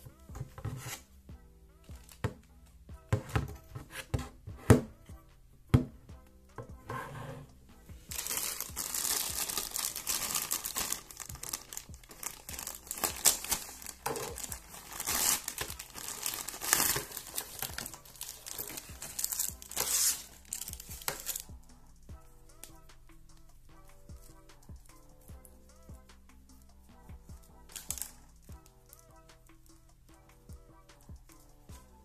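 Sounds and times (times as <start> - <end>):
plastic bag crinkling: 8.1 - 21.4.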